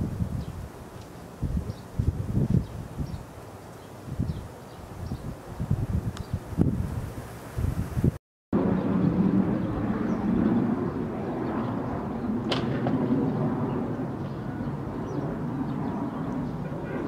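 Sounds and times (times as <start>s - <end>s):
low outdoor rumble: 8.6s - 17.0s.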